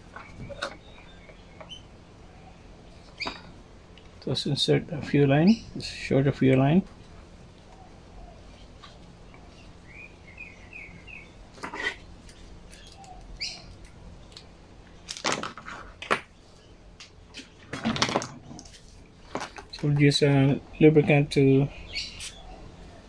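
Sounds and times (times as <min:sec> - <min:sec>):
rustles and clicks of parts handling: 0:00.0 - 0:01.8, 0:11.6 - 0:16.4, 0:17.0 - 0:20.1
bird chirping: 0:00.0 - 0:03.5, 0:07.0 - 0:14.3, 0:20.7 - 0:23.0.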